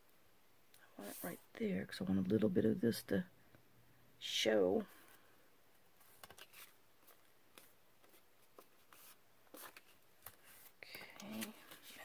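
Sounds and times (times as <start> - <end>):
paper rustling: 6.0 - 12.0.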